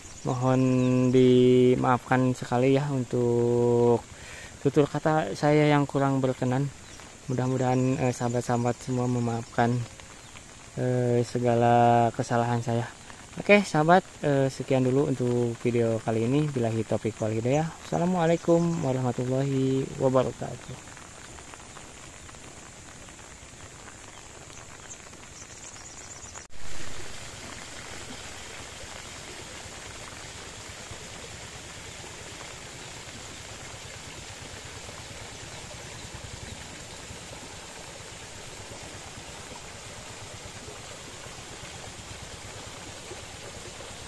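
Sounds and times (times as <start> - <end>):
water rushing: 0.0 - 44.0.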